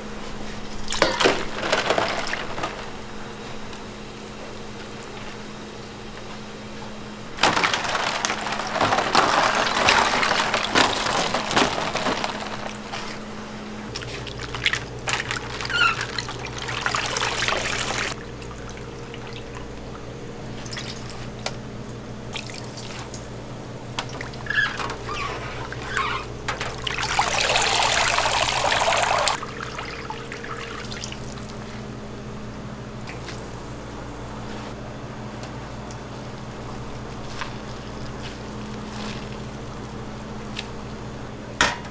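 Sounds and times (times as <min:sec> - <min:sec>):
kitchen equipment hum: 0:00.0 - 0:41.9
water pouring and splashing: 0:07.4 - 0:13.2, 0:13.9 - 0:21.4, 0:22.3 - 0:23.4, 0:24.0 - 0:31.8.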